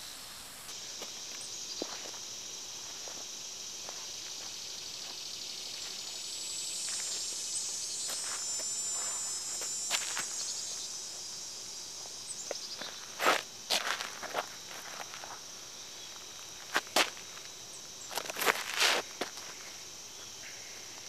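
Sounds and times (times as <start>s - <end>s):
high-pitched insect chorus: 0.0s - 21.0s
footstep on dirt: 0.7s - 6.2s, 8.0s - 10.6s, 12.4s - 15.5s, 16.2s - 17.5s, 18.1s - 19.7s.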